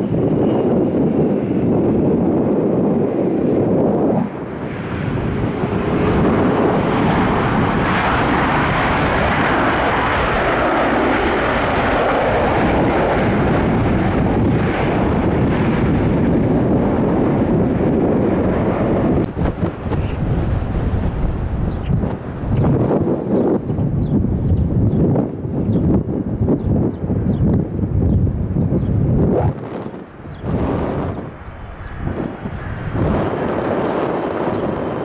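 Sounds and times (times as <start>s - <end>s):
airliner jet engines: 0.0s - 35.0s.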